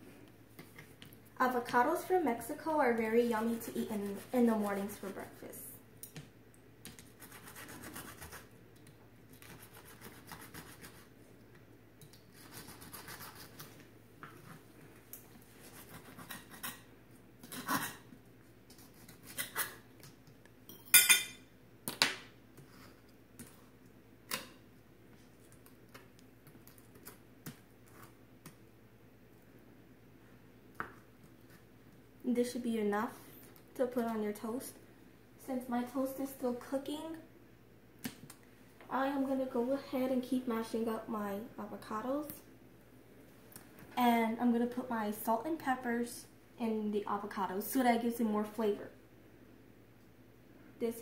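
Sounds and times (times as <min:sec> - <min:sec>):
knife sawing through bacon: 0:12.4 - 0:13.7.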